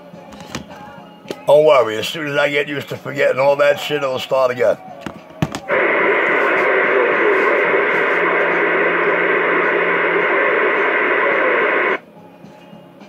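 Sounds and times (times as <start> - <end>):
radio static: 5.7 - 12.0.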